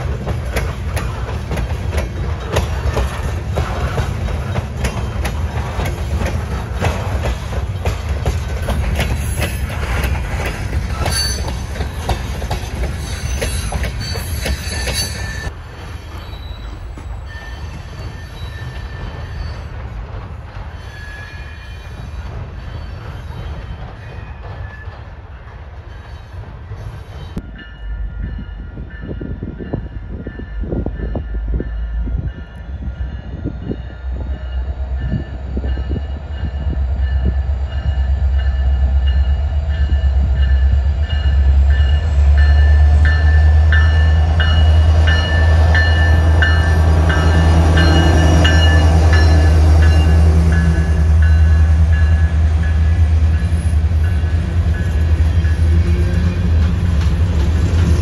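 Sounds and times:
train wheels clattering over rails: 0.0 - 27.4, 35.0 - 58.0
diesel locomotive rumble: 27.3 - 58.0.

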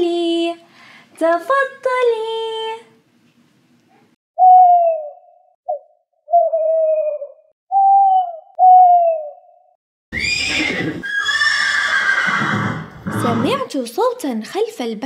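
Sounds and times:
owl hooting: 4.4 - 11.6
horse whinnying: 10.1 - 13.6.

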